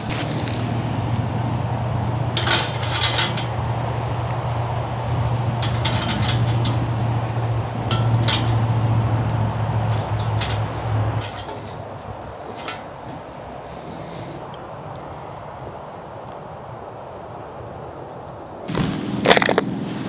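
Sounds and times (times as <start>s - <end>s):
steady low hum: 0.0s - 14.2s
wood knocking against metal stove: 2.3s - 12.9s.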